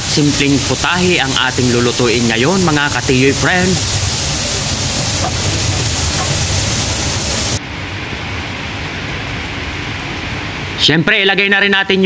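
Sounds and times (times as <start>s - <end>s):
vegetables sizzling in oil: 0.0s - 7.6s.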